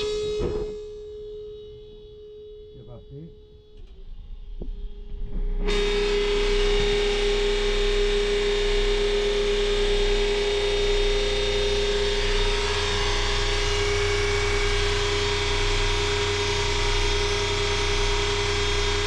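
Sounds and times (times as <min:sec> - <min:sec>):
electric pump whining: 0:00.0 - 0:19.0.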